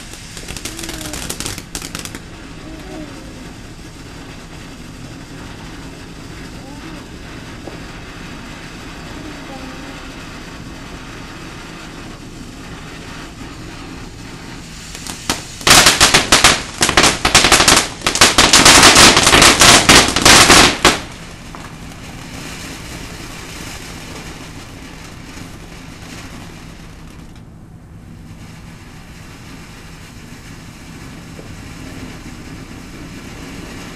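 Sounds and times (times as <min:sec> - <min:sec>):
rapid loud crackling pops: 0:00.0 - 0:08.5, 0:09.6 - 0:27.5
firework fountain hissing: 0:00.0 - 0:33.9.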